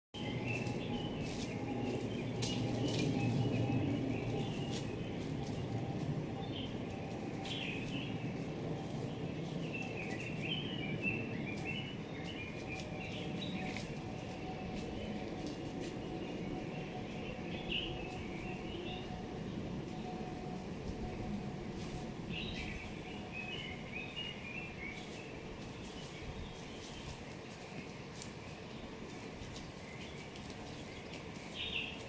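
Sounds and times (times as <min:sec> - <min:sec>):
birds chirping and calling: 0:00.2 - 0:20.1
low background noise: 0:00.2 - 0:32.0.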